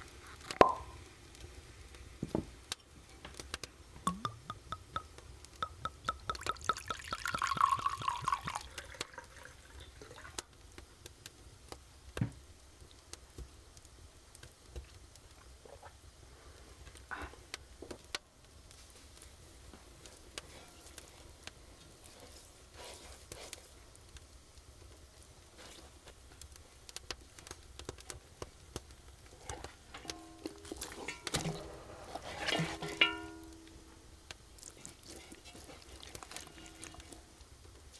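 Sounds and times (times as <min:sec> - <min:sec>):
wine pouring and splashing: 0:05.6 - 0:10.4, 0:34.6 - 0:37.2
handling clinks and knocks: 0:29.9 - 0:33.8.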